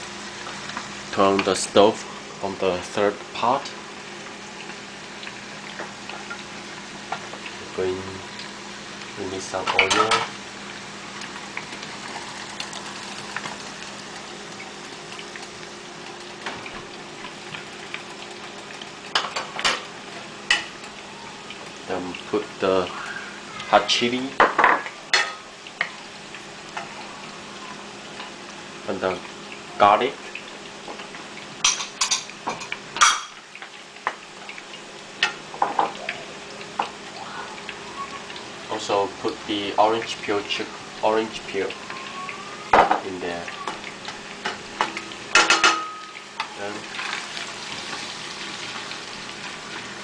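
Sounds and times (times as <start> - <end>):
chicken deep-frying in oil: 0.0 - 50.0
cookware clattering: 9.7 - 10.3, 45.3 - 46.2.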